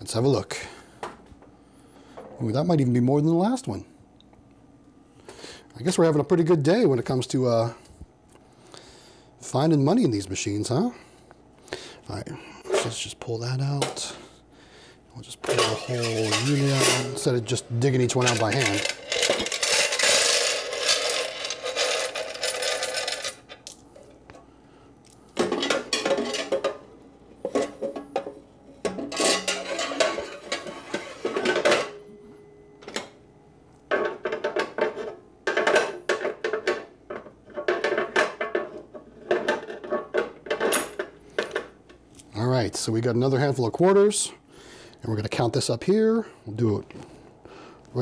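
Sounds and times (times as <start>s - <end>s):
metal coin box rattling: 15.5s - 23.7s
coins clinking: 18.1s - 23.8s.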